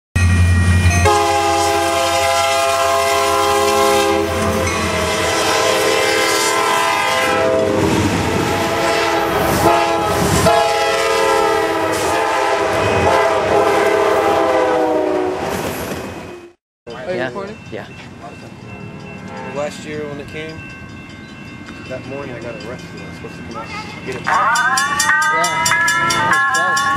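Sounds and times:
passing train rumble: 0:00.2 - 0:26.9
locomotive air horn blasts: 0:01.0 - 0:15.5.

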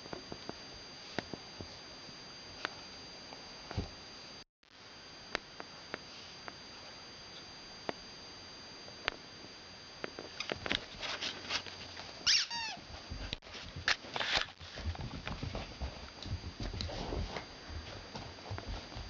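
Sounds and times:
puppy squeal: 0:12.2 - 0:12.8.

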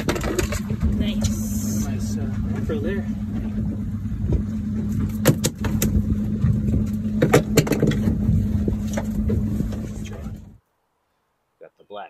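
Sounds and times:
boat engine humming: 0:00.0 - 0:10.6
sharp clicks and knocks: 0:05.0 - 0:08.2.

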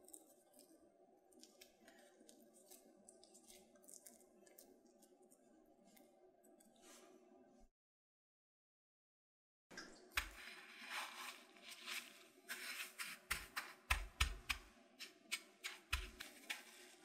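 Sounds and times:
breadcrumbs crunching and rustling: 0:00.0 - 0:06.8, 0:10.1 - 0:17.0.

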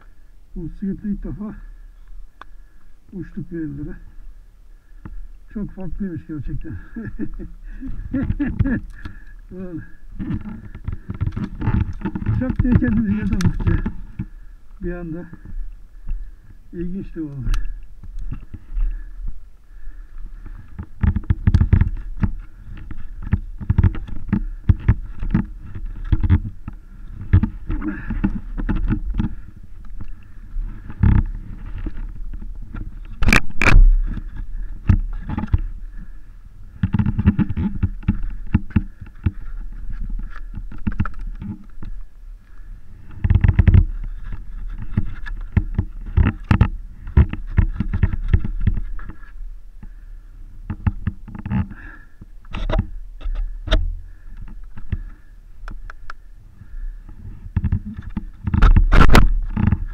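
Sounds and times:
mud scraping and knocking: 0:05.6 - 0:15.6, 0:19.8 - 0:42.0, 0:42.6 - 0:50.0, 0:57.5 - 0:59.9.

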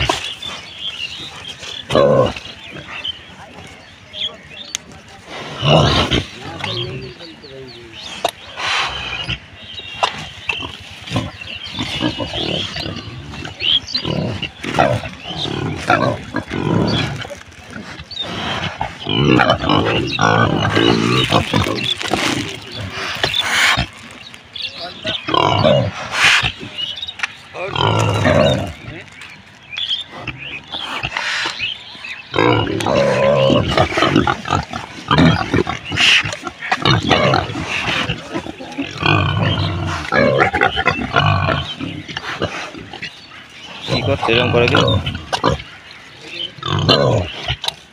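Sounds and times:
pigs grunting: 0:00.0 - 0:03.8, 0:05.1 - 0:24.2, 0:24.8 - 0:29.2, 0:30.0 - 0:47.9.

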